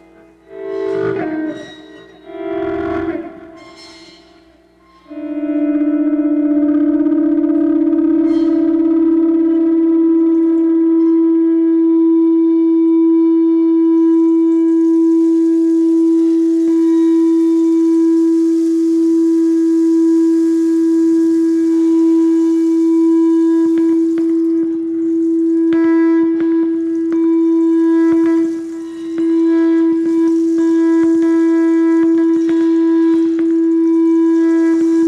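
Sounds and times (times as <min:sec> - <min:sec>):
held guitar tone: 0:00.0 - 0:35.0
soft high hiss: 0:13.9 - 0:35.0.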